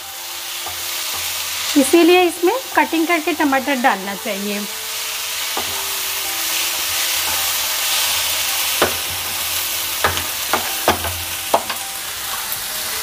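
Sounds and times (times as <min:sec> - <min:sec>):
vegetables sizzling in oil: 0:00.0 - 0:13.0
spatula knocking against pan: 0:08.8 - 0:09.4, 0:10.0 - 0:11.8.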